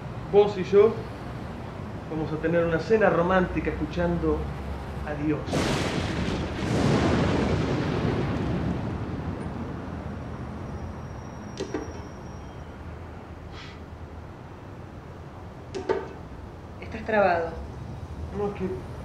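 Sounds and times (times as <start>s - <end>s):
loud rumbling boom: 5.4s - 12.3s.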